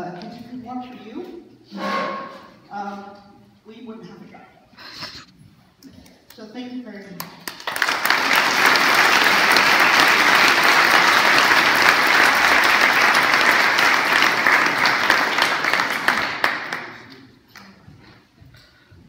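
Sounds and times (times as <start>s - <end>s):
audience applauding: 7.4s - 17.3s.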